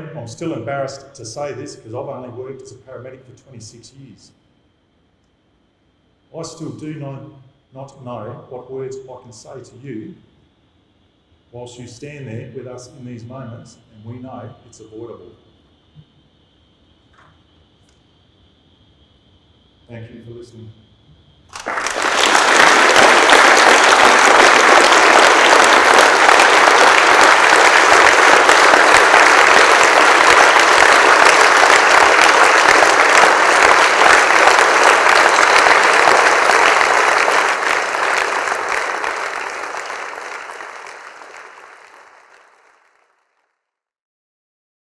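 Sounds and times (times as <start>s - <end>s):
audience applauding: 21.5s - 43.4s.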